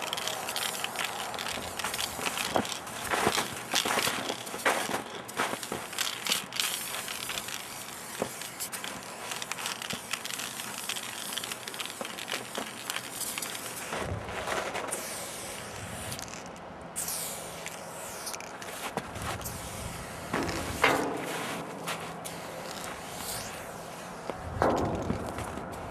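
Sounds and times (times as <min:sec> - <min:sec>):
spray paint can hissing: 0:00.0 - 0:14.1, 0:14.8 - 0:25.9
clicks and rustling: 0:00.0 - 0:15.0.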